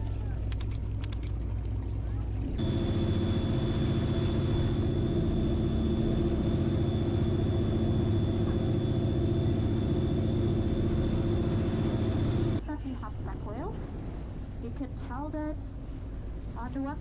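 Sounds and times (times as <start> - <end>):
rush of boat wake: 0.0 - 12.6
boat engine droning: 0.0 - 13.4
wind: 0.0 - 17.0.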